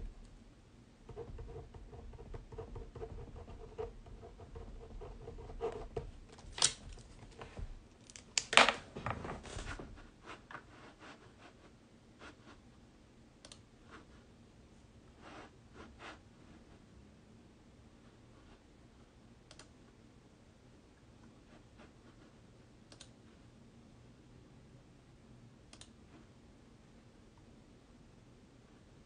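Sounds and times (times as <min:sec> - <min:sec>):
small clicks: 0:19.5 - 0:19.7.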